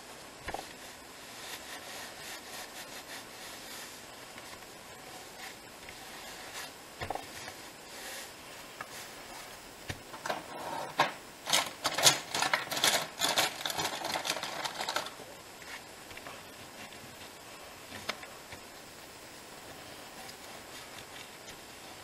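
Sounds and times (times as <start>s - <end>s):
hand rubbing over paper: 0.6s - 9.6s.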